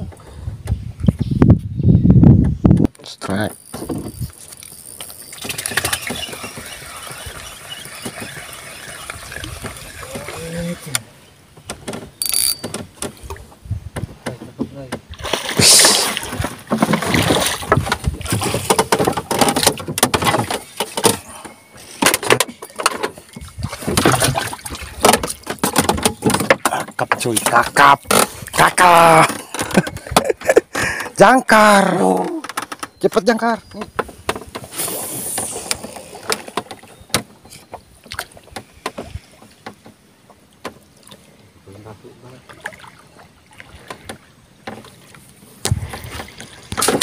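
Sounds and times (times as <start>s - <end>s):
fishing reel clicks and knocks: 12.2s - 12.8s.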